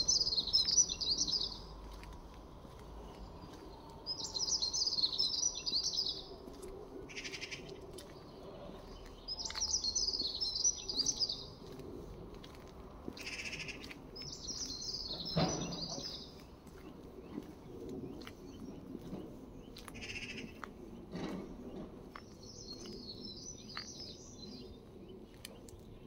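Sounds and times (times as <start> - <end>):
songbird twittering: 0.0 - 1.7, 4.1 - 6.3, 9.1 - 11.5, 13.2 - 17.5.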